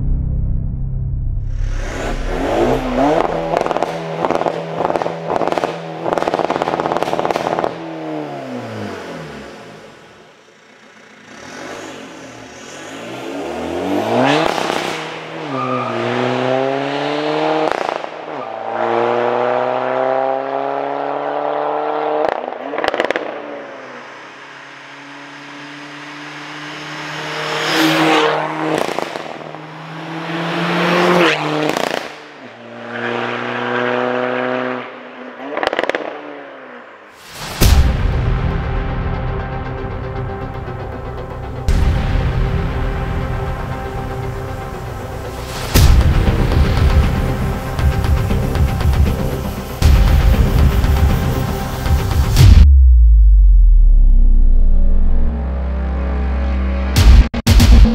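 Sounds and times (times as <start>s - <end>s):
diesel car engine accelerating: 1.0s - 36.3s, 38.4s - 57.0s.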